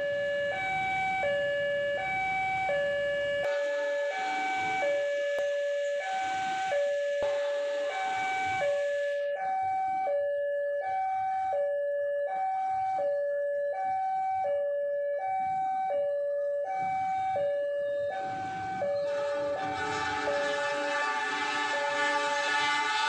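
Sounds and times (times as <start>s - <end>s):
level crossing two-tone alarm: 0.0s - 23.0s
rushing noise: 19.0s - 23.0s.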